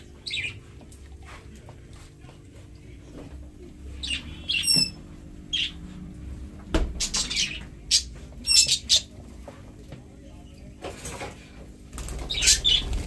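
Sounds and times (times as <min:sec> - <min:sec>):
budgerigars chirping: 0:04.0 - 0:05.8, 0:07.0 - 0:09.1, 0:12.3 - 0:13.0.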